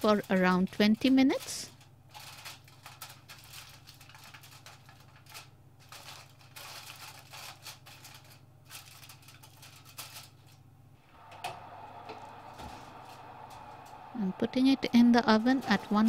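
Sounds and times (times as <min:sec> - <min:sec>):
kitchen foil crinkling: 0:00.0 - 0:10.7.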